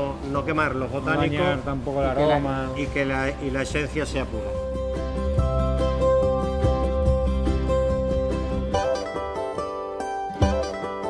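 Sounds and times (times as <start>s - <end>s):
plucked strings music: 2.4s - 11.0s
steady bass: 3.3s - 9.1s.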